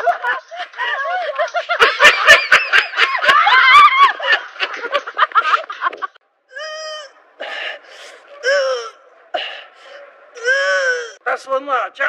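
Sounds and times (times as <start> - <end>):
people laughing and shrieking: 0.0 - 6.1.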